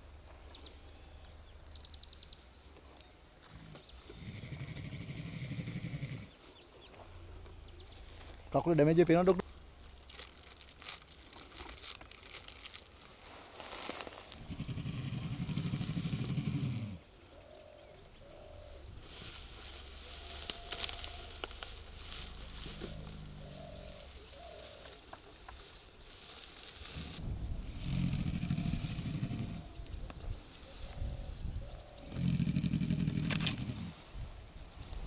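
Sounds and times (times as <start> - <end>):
dry grass rustling and snapping: 9.4 - 16.8, 18.2 - 34.0.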